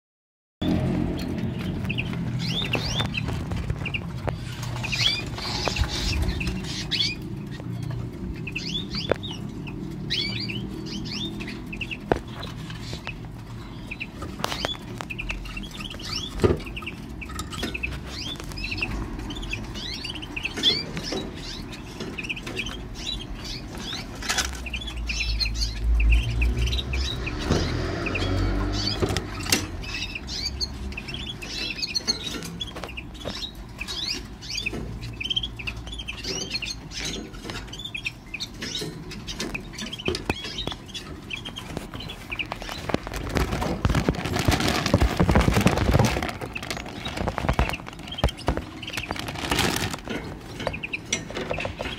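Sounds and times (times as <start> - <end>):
canary chirping: 0.6 - 51.9
wings fluttering: 41.5 - 50.2.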